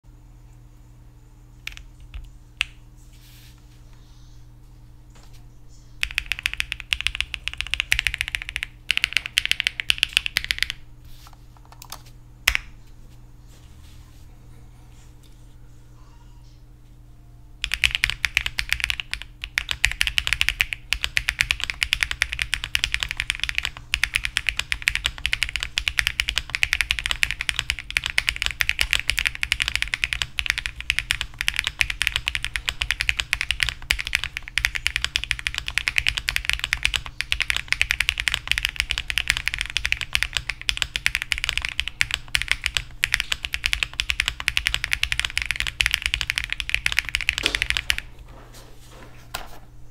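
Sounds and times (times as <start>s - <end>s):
fast mechanical keyboard typing: 1.7s - 2.7s, 6.0s - 10.8s, 17.6s - 48.1s.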